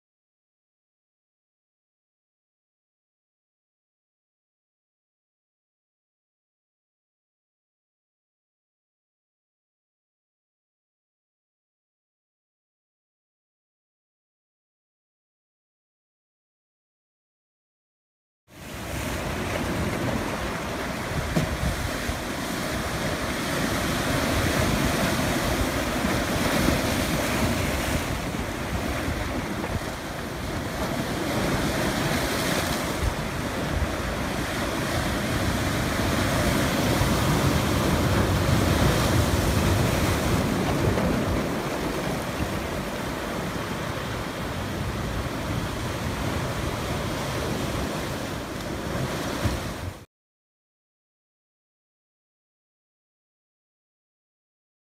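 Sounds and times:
sea surf breaking over rocks: 0:18.6 - 0:50.1.

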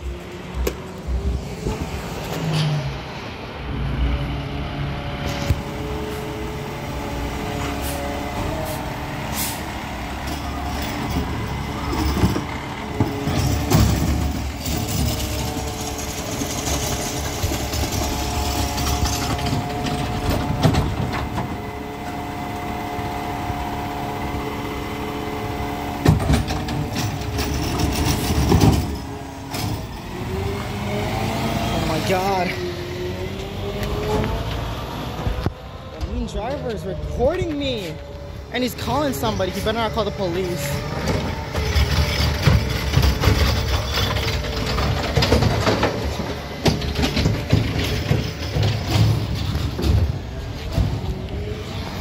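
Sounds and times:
garbage truck engine running: 0:00.0 - 0:52.0
air brakes hissing: 0:07.6 - 0:09.8.

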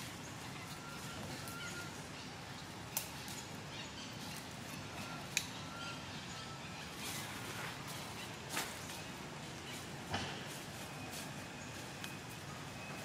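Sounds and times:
outdoor ambience: 0:00.0 - 0:13.0
faint whistled calls: 0:00.6 - 0:02.0.

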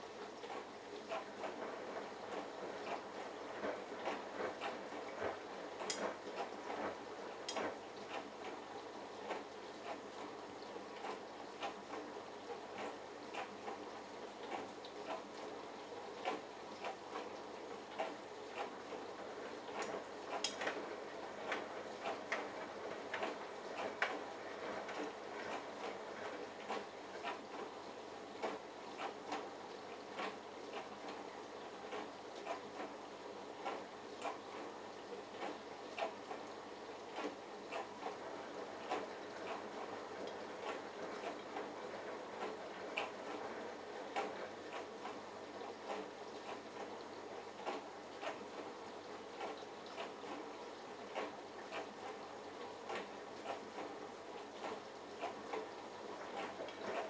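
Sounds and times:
washing machine churning: 0:00.0 - 0:57.0
small clicks and knocks: 0:05.8 - 0:06.2, 0:19.8 - 0:20.8.

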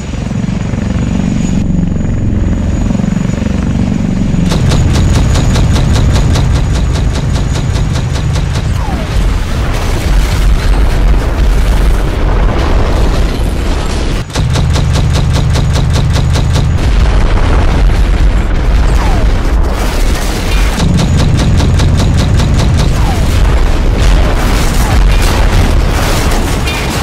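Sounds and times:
gunfire: 0:04.5 - 0:13.3, 0:14.1 - 0:27.0
fast even pulsing: 0:20.5 - 0:24.3.

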